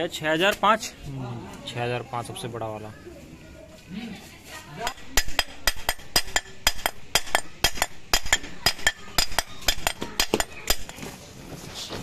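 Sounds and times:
sharp metallic taps and clinks: 4.8s - 11.0s.

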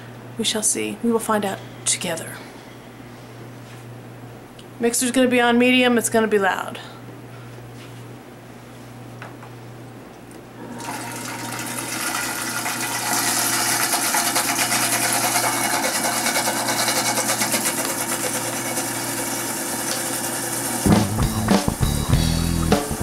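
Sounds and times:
blender whirring: 10.6s - 20.9s.

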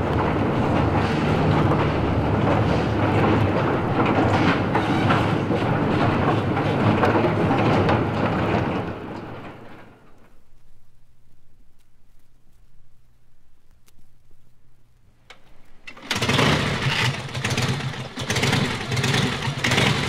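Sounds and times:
rushing rumbling mechanical noise: 0.0s - 10.5s, 15.2s - 20.0s
scattered clatter: 15.7s - 20.0s.

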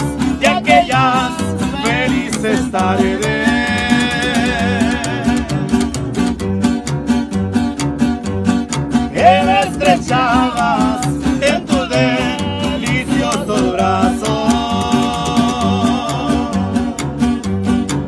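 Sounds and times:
plucked upright bass line: 0.0s - 18.0s
strummed acoustic guitars: 0.0s - 18.0s
wordless wavering voice: 3.2s - 5.9s.

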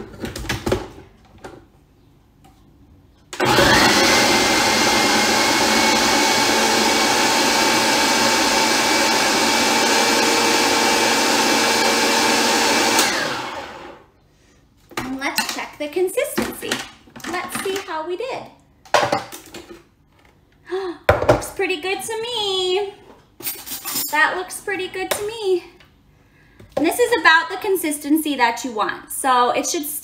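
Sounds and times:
food processor motor whining: 3.4s - 14.1s.

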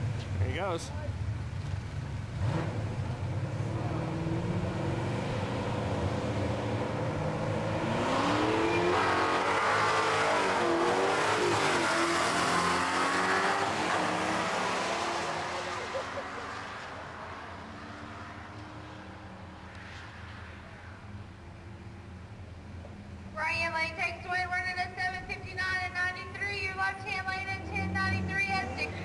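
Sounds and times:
drag racing cars accelerating: 1.5s - 21.2s.

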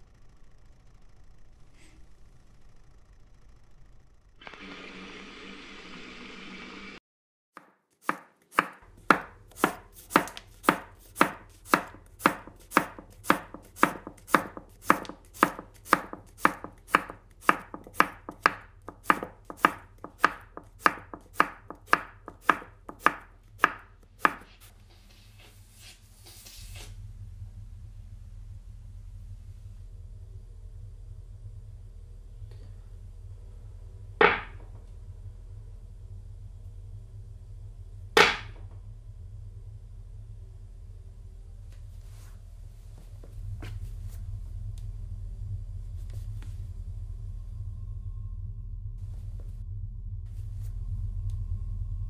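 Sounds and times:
knife chopping on wooden board: 7.6s - 24.5s, 34.2s - 34.6s, 38.2s - 38.6s.

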